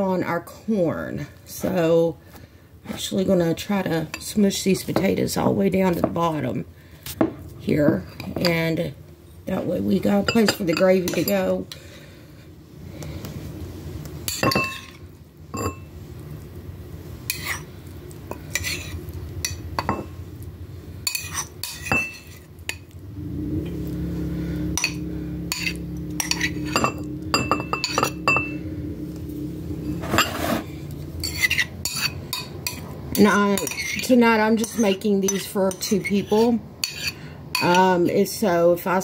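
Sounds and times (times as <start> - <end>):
steady low hum: 0.0 - 39.0
spoon clinking on ceramic bowl: 14.3 - 14.9, 15.6 - 15.9, 24.8 - 28.6.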